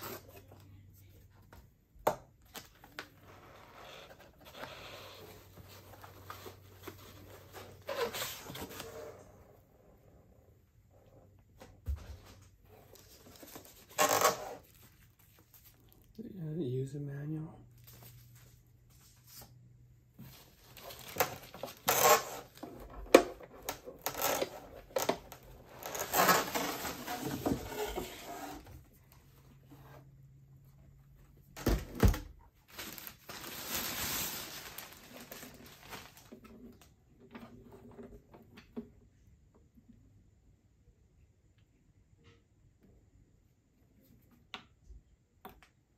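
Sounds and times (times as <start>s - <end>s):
cardboard and plastic rustling: 2.4s - 9.4s, 11.7s - 16.2s, 17.8s - 30.1s, 31.3s - 38.4s.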